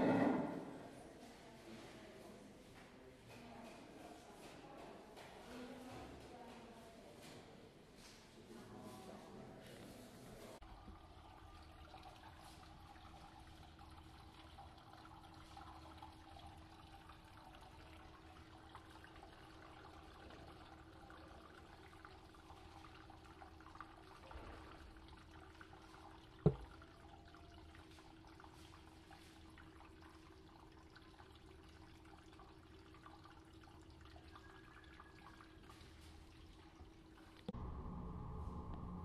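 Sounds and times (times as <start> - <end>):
steady low hum: 37.5 - 39.0.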